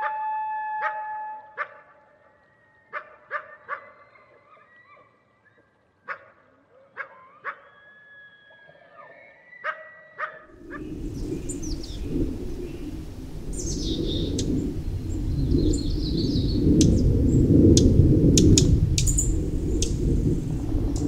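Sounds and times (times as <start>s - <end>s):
coyotes howling and yipping: 0.0s - 21.0s
steady rushing noise: 10.5s - 21.0s
high bird chirps: 10.7s - 17.4s.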